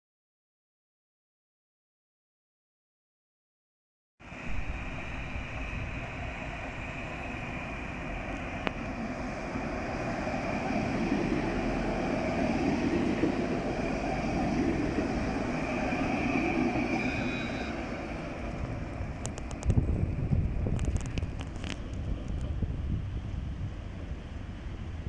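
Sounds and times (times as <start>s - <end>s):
steady high whine: 4.2s - 24.5s
tram passing with wheel rumble: 4.2s - 25.0s.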